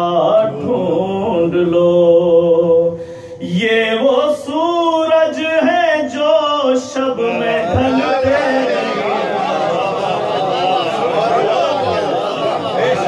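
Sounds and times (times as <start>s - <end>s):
man chanting melodically: 0.0s - 9.7s.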